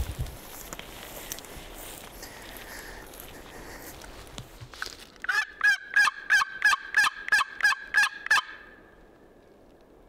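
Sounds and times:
turkey call hen yelps: 5.3s - 8.7s.

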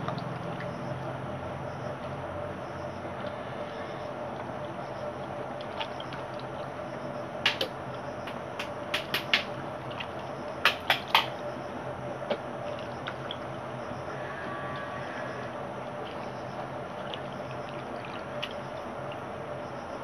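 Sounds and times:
steady background noise: 0.0s - 20.0s.

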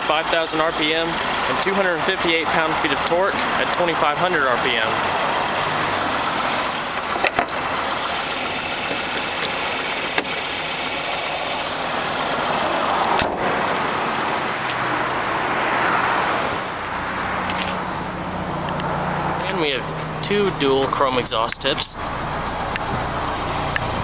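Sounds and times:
car engine idling: 0.0s - 24.0s
hood prop rod clanks: 6.9s - 7.9s, 8.6s - 10.9s.

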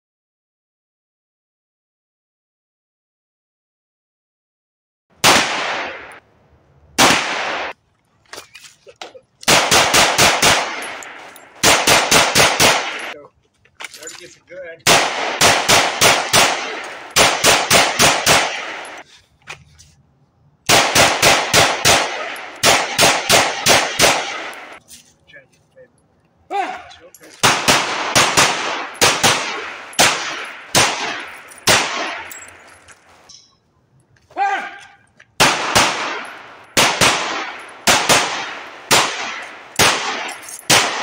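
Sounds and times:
pistol shots: 5.2s - 6.2s, 7.0s - 7.8s, 9.4s - 13.2s, 14.8s - 19.0s, 20.7s - 24.8s, 27.4s - 32.6s, 35.4s - 41.0s.

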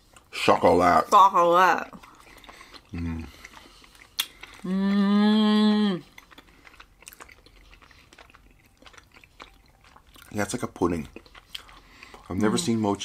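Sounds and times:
faint chewing: 1.8s - 13.0s
person humming with closed lips: 4.6s - 6.1s.

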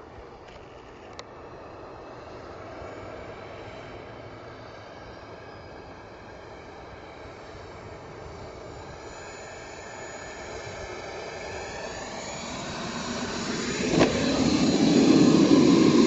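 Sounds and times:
model jet turbine whining: 0.0s - 16.0s
model jet touching down on grass: 8.0s - 16.0s.

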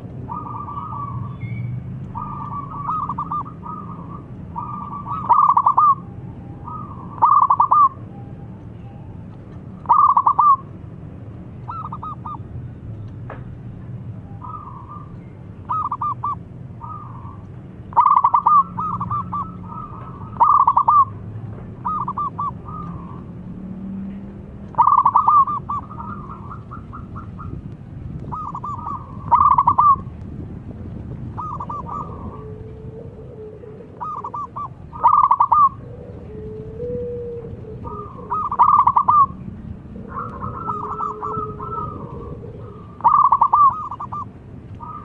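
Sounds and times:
dove cooing: 0.2s - 1.3s, 2.0s - 8.0s, 9.8s - 10.7s, 11.7s - 12.4s, 14.4s - 21.2s, 21.8s - 23.4s, 24.7s - 27.6s, 28.2s - 30.1s, 31.3s - 45.0s.

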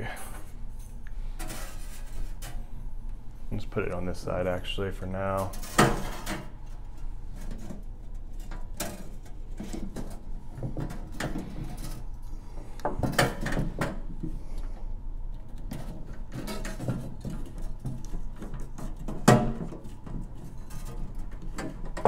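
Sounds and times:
knocks and clicks inside metal can: 15.7s - 22.0s.

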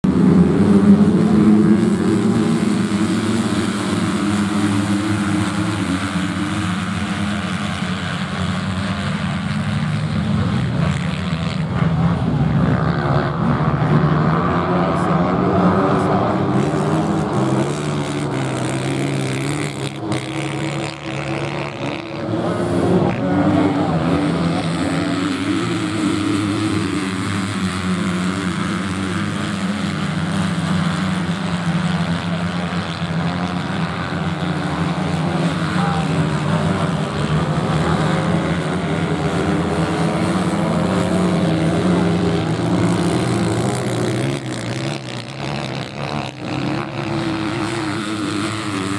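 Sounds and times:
motocross bike engines revving: 0.0s - 48.9s.

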